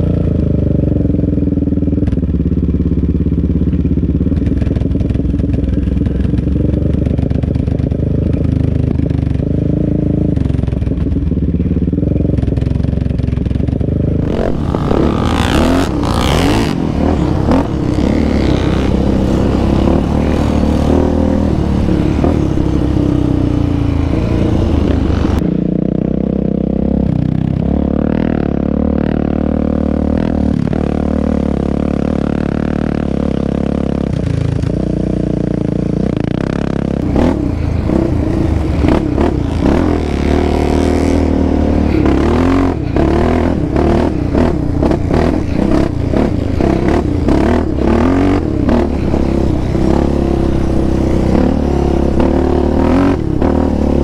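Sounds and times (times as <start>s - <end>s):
other off-road engines: 0.0s - 54.0s
quad engine revving: 12.2s - 25.5s, 35.8s - 54.0s.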